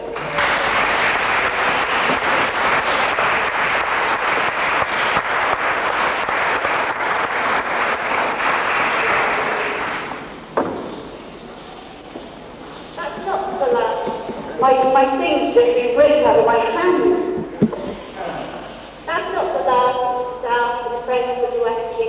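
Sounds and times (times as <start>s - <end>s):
audience applauding: 0.0s - 10.6s, 13.0s - 14.9s
sharp knock: 10.6s - 11.1s.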